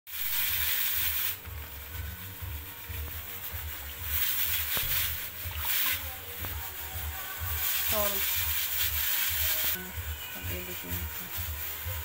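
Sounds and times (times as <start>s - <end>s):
water pouring into hot pan: 0.1s - 2.6s, 3.2s - 6.1s.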